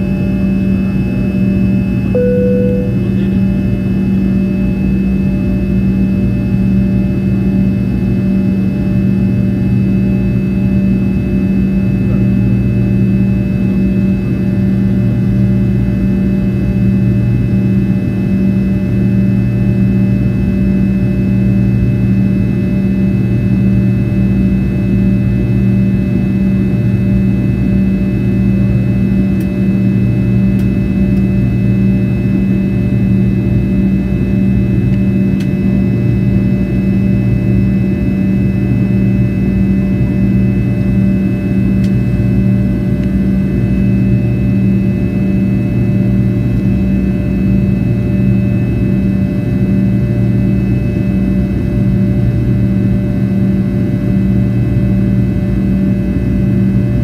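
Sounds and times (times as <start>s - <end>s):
jet engines droning in cabin: 0.0s - 57.0s.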